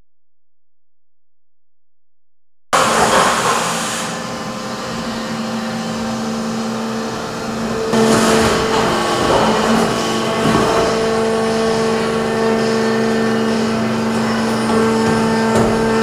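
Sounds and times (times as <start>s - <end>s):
factory machinery humming: 2.8s - 16.0s.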